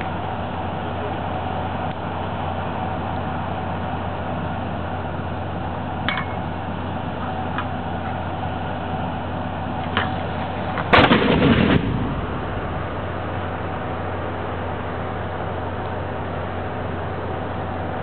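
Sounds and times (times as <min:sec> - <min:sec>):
low hum: 0:00.0 - 0:18.0
mortar blast: 0:10.8 - 0:13.7.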